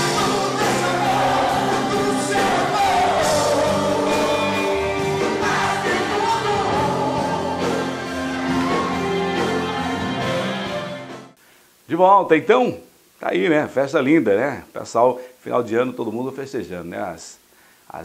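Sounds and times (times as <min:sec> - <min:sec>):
man singing into microphone: 0:00.0 - 0:08.1
band playing: 0:00.0 - 0:11.4.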